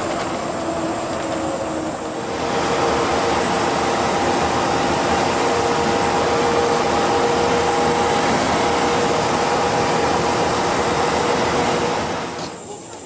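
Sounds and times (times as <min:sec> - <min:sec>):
bus engine and road noise: 0:00.0 - 0:13.0.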